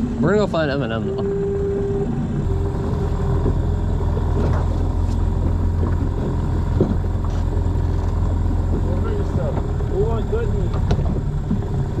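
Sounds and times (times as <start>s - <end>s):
outboard motor idling: 0.0s - 12.0s
light knocks on boat: 10.7s - 11.7s.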